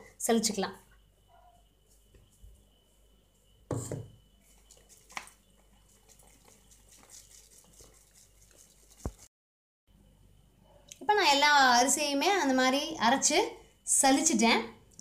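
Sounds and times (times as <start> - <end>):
knock: 3.7 - 4.2
flour rustling on sieve mesh: 4.4 - 9.3.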